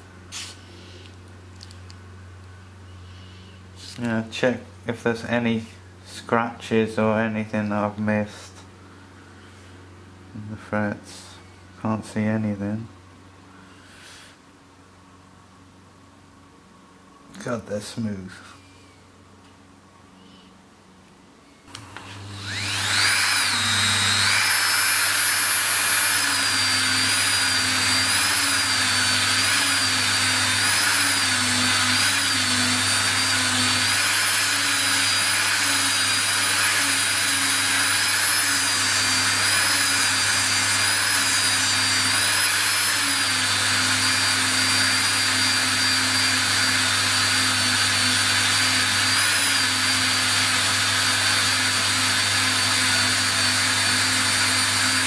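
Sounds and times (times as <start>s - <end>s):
rotary tool high whine: 21.7s - 55.0s.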